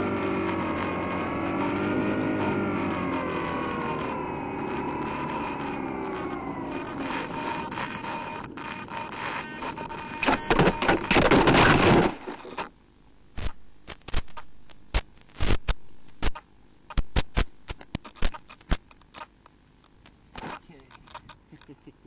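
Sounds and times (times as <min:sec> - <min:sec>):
electric motor whining: 0:00.0 - 0:11.5
plane crashing into grass: 0:10.2 - 0:12.6
sharp clicks: 0:13.4 - 0:21.8.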